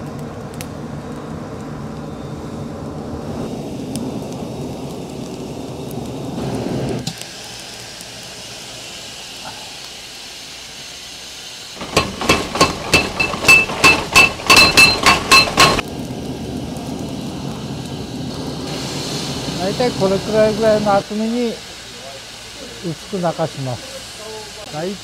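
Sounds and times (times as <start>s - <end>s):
forge fire rushing: 0.0s - 25.0s
hammer ringing on steel: 11.8s - 15.8s.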